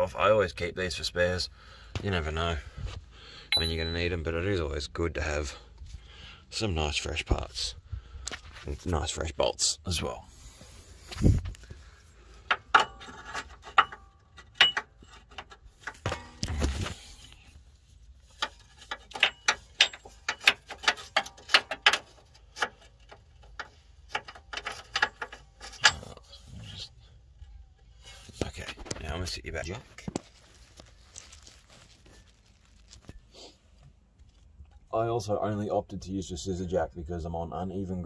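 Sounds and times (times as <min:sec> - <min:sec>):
metal parts clinking: 0:18.4 - 0:26.3.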